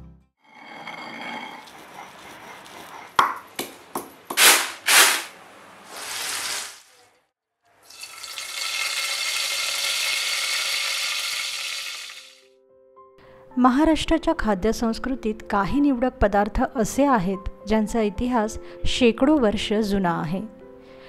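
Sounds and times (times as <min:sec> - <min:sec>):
leaves sizzling in hot oil: 0:05.9 - 0:06.9, 0:07.8 - 0:12.4.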